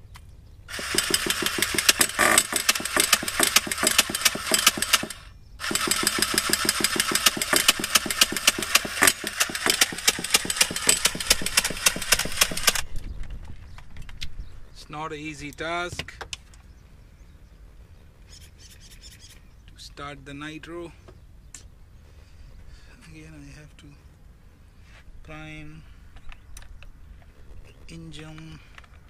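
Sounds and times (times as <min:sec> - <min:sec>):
engine starter cranking: 0:00.7 - 0:12.8.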